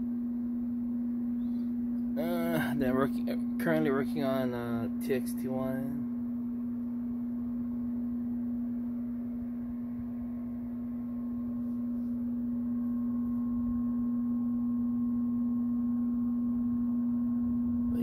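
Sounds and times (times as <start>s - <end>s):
steady low hum: 0.0s - 18.0s
faint higher tone: 5.5s - 18.0s.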